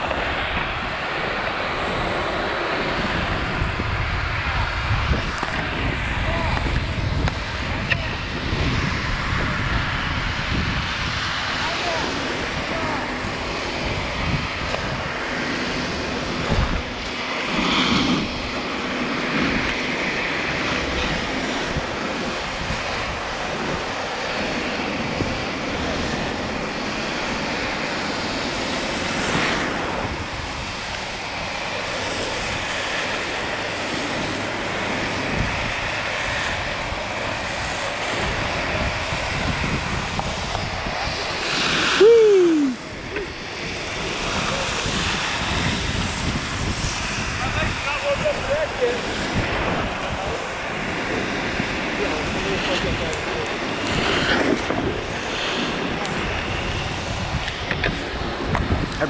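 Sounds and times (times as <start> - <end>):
wind on microphone: 0.0 - 59.0
skis scraping over snow: 11.5 - 42.4, 43.1 - 59.0.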